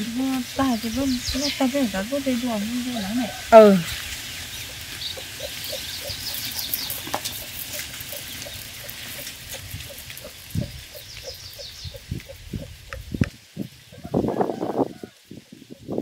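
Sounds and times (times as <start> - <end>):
chickens clucking: 0.0 - 15.8.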